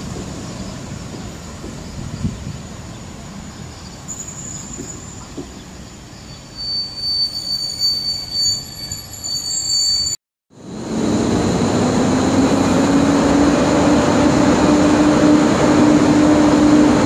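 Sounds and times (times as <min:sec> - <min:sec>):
train rumbling: 0:00.0 - 0:17.0
train wheels squealing: 0:00.5 - 0:10.2.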